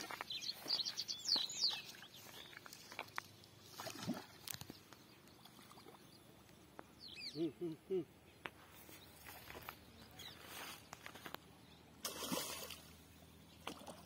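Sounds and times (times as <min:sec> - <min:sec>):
light splash of water: 0:01.9 - 0:04.8, 0:12.0 - 0:13.0, 0:13.6 - 0:14.0.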